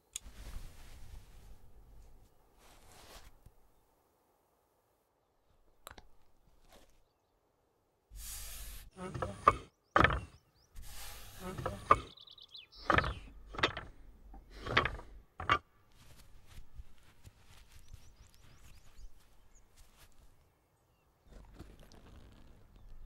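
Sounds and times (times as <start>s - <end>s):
iron scraping: 8.2s - 12.2s, 12.8s - 15.6s.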